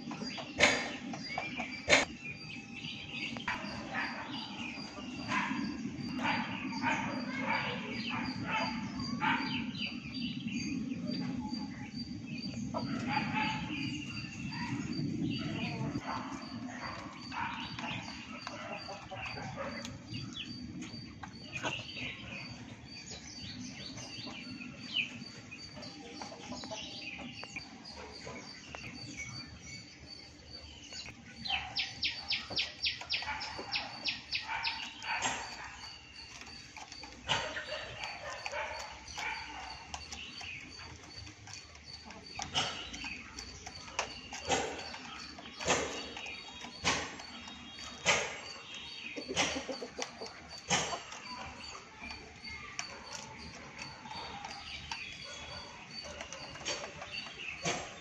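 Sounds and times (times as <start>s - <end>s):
bird chirps and calls: 0.0s - 58.0s
sharp repeated bird calls: 0.4s - 10.0s.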